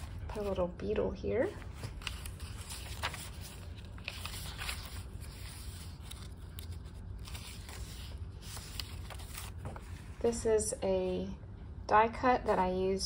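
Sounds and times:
paper pages turning: 0:00.0 - 0:00.7, 0:01.5 - 0:10.3
paper crinkling: 0:01.5 - 0:10.3.

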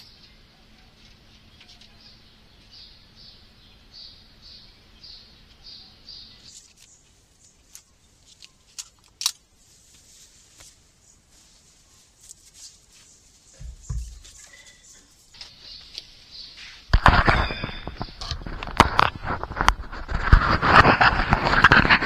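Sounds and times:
bird chirping: 0:00.0 - 0:08.8, 0:11.4 - 0:18.6.

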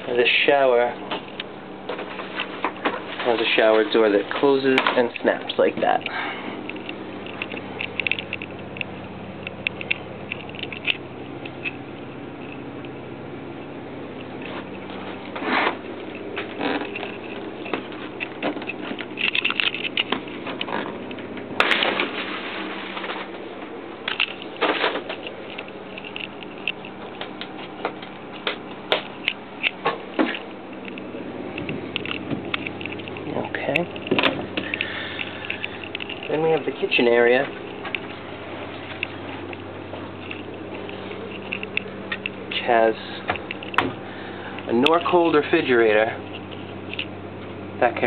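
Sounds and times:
steady low hum: 0:00.0 - 0:48.0
light clicks and ticks: 0:03.6 - 0:13.0, 0:24.0 - 0:38.2.

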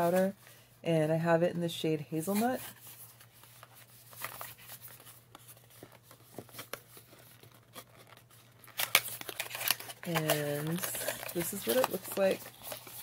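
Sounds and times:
cardboard box handled and opened: 0:03.7 - 0:13.0.

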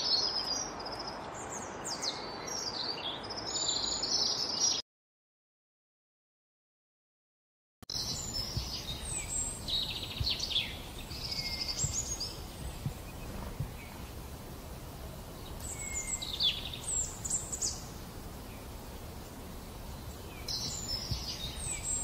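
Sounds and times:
low outdoor rumble: 0:07.9 - 0:22.0
songbird trilling: 0:07.9 - 0:22.0.

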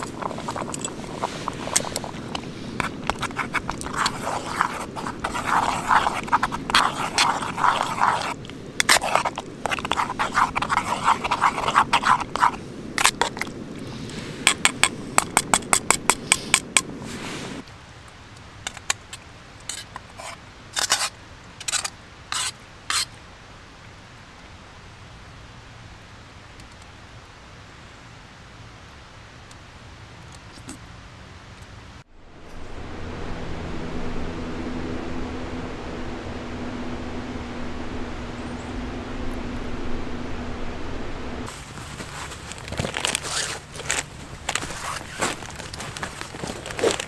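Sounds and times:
metal spoon scraping pot: 0:00.0 - 0:13.5
footsteps on dry leaves: 0:41.4 - 0:47.0.

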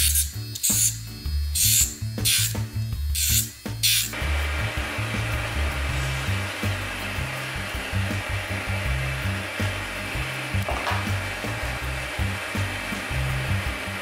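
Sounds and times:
hair dryer blowing: 0:04.2 - 0:14.0.

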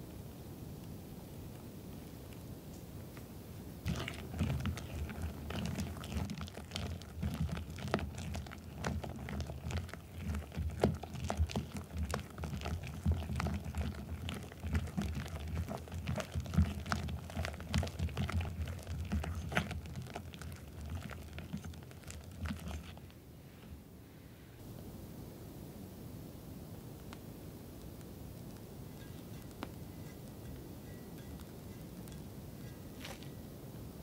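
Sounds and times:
soft wet squelching: 0:03.9 - 0:23.8.

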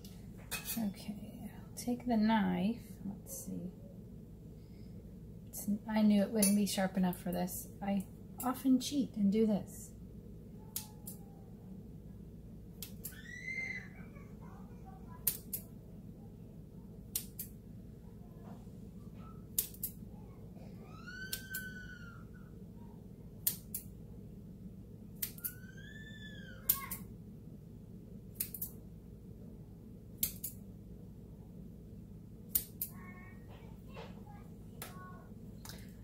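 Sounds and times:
steady low hum: 0:00.0 - 0:36.0
scissors snapping shut: 0:15.2 - 0:15.6, 0:17.1 - 0:17.5, 0:19.6 - 0:20.0, 0:21.3 - 0:21.7, 0:23.4 - 0:23.9, 0:25.2 - 0:25.6, 0:28.4 - 0:28.8, 0:30.2 - 0:30.6, 0:32.5 - 0:32.9.

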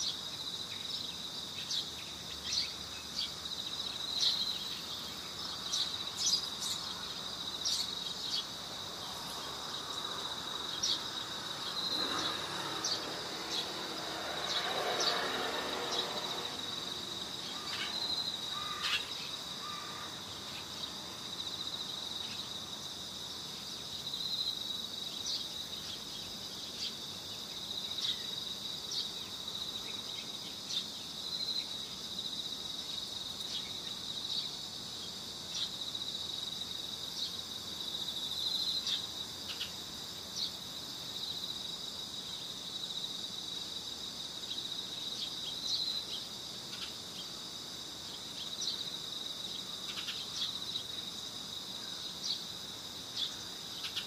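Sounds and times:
crickets chirring: 0:00.0 - 0:54.0
soft rushing noise: 0:09.0 - 0:18.1.

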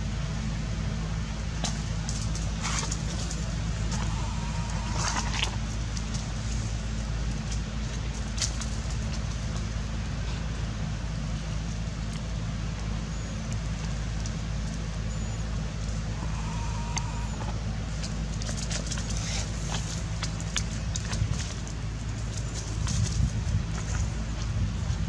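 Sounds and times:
low motor hum: 0:00.0 - 0:25.0.

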